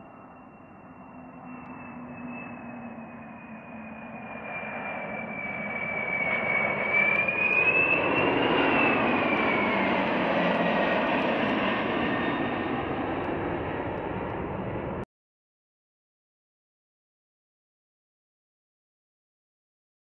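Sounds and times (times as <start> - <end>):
high engine whine: 0.0 - 15.0
jet engines flying overhead: 0.0 - 15.1.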